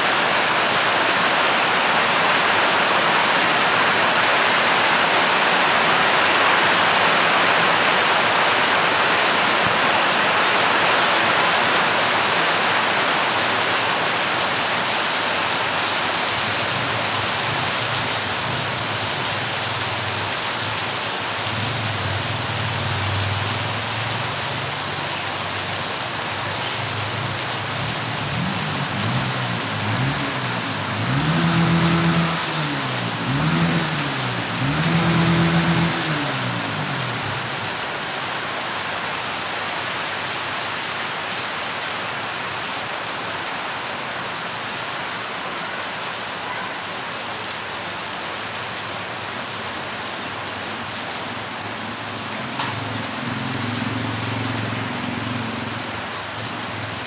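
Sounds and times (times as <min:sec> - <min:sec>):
rain pouring onto water: 0:00.0 - 0:57.0
vehicle engine revving: 0:27.7 - 0:37.9, 0:51.9 - 0:57.0.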